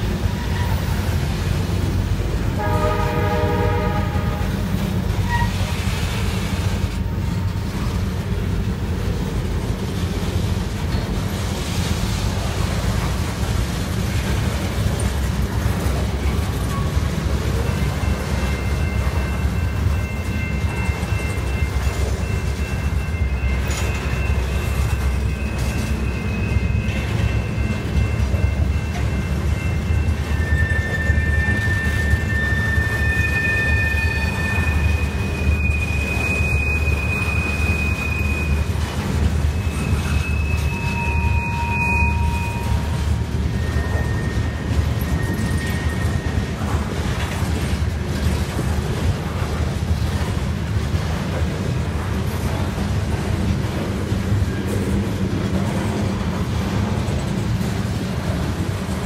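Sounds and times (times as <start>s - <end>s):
train wheels rumbling on rail: 0.0s - 59.0s
locomotive horn: 2.5s - 4.7s
thin wheel squeal: 5.2s - 5.8s, 29.6s - 46.6s.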